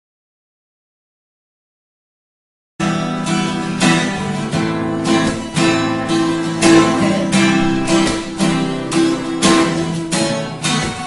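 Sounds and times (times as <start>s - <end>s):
strummed acoustic guitar music: 2.8s - 11.0s.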